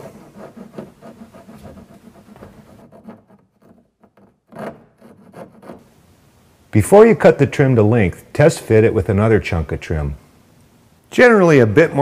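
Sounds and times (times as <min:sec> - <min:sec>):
hand file rasping on wood: 0:00.0 - 0:05.9.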